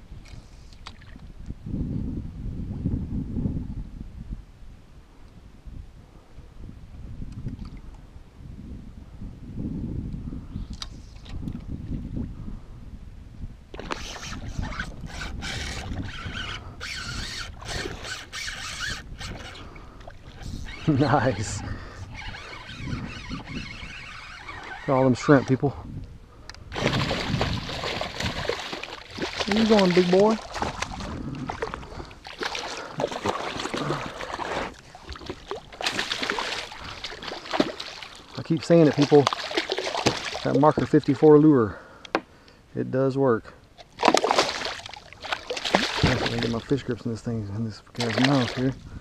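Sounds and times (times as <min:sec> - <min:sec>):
wind rumble on microphone: 0:00.0 - 0:41.8, 0:45.2 - 0:49.0
fish splashing in water: 0:26.8 - 0:40.6, 0:43.8 - 0:46.7.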